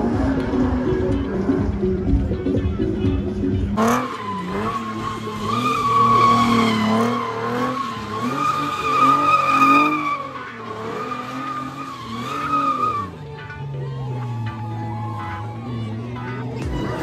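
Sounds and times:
car engine revving: 0:00.0 - 0:17.0
tyres squealing: 0:03.9 - 0:17.0.

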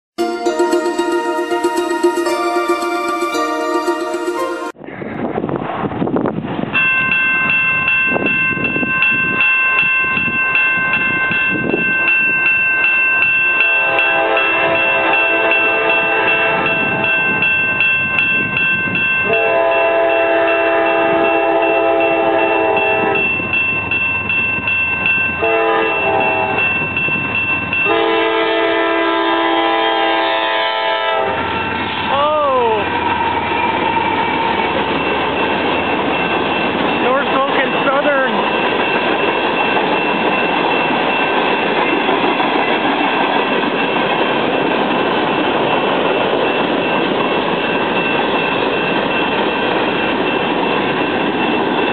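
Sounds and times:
railroad crossing bell ringing: 0:00.2 - 0:04.9, 0:06.7 - 0:51.9
locomotive air horn blasts: 0:13.8 - 0:17.2, 0:19.3 - 0:23.2, 0:25.4 - 0:26.6, 0:27.9 - 0:31.4.

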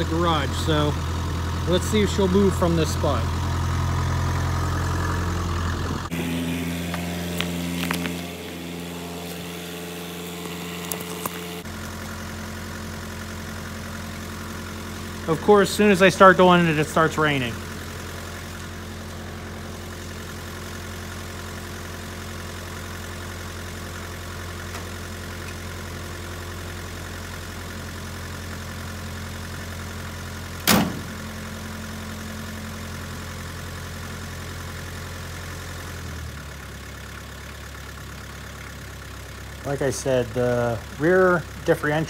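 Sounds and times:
diesel engine idling: 0:00.0 - 0:42.0
car door slamming: 0:30.6 - 0:31.2.

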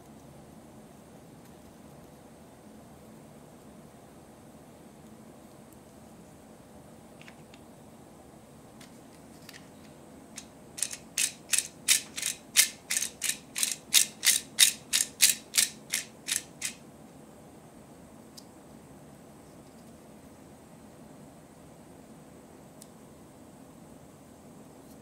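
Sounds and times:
plastic ratchet dial clicking: 0:10.8 - 0:16.8.

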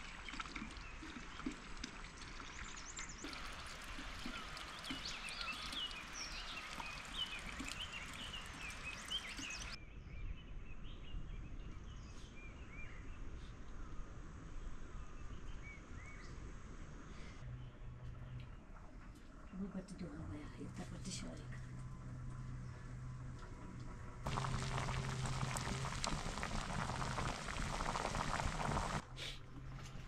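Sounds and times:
birds chirping: 0:02.4 - 0:09.8, 0:24.3 - 0:29.0.

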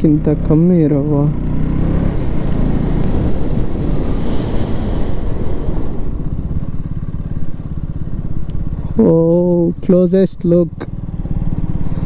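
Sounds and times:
motorcycle engine running: 0:00.0 - 0:12.0
wind rushing over microphone: 0:01.3 - 0:07.8.

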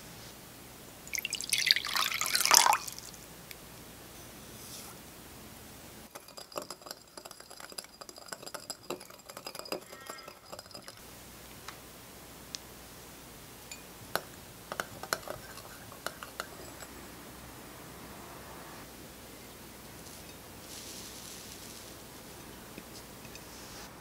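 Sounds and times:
whisk clinking against glass bowl: 0:06.1 - 0:11.0, 0:13.7 - 0:17.0.

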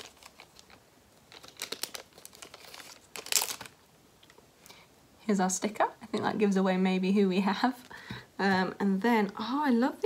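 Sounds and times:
plastic packaging crinkling: 0:00.0 - 0:04.4.

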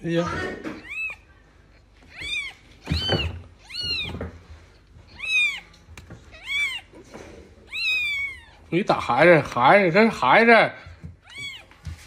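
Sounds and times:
kitten mewing: 0:00.4 - 0:01.3, 0:02.0 - 0:04.3, 0:05.1 - 0:07.0, 0:07.6 - 0:08.7.

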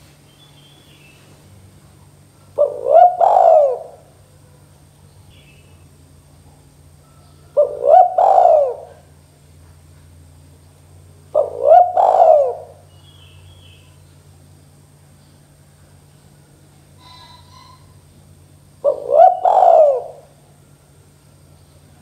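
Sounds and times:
dove cooing: 0:02.1 - 0:04.7, 0:06.6 - 0:09.2, 0:11.2 - 0:13.9, 0:16.9 - 0:18.1, 0:18.7 - 0:20.8.

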